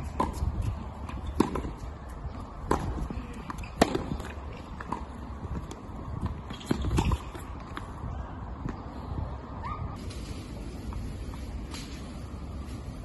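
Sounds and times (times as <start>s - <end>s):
tennis ball struck by rackets: 1.1s - 1.8s, 2.6s - 7.8s
ball bouncing on hard court: 2.6s - 7.8s.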